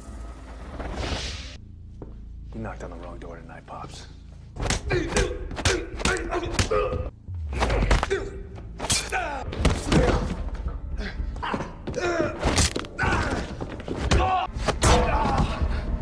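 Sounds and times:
men grunting and groaning: 4.8 - 16.0.

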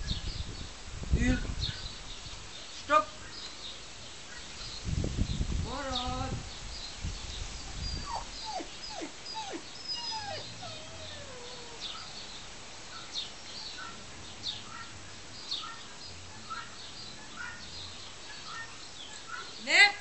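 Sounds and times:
birds chirping: 0.0 - 20.0
dog whimpering: 7.8 - 12.1.

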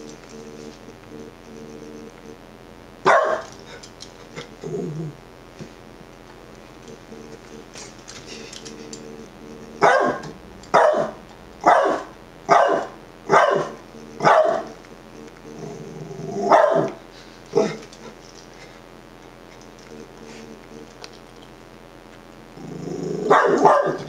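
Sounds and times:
dog barking: 3.0 - 3.5, 9.8 - 14.7, 16.5 - 17.0, 23.3 - 24.0
dog growling: 4.4 - 5.2, 15.5 - 16.9, 17.5 - 18.1, 22.6 - 24.0.

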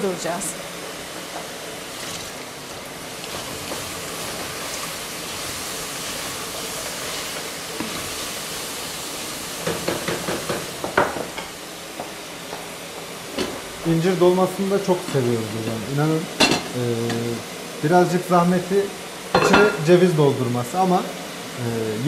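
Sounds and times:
utensils clinking on dishes: 19.3 - 19.8.

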